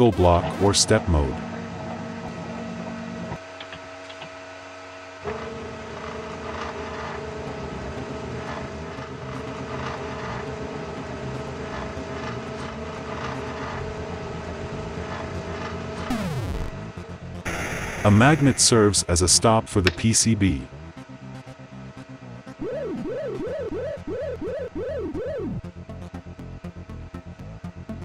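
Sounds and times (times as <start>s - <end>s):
stepper motors whining: 20.7s - 28.0s.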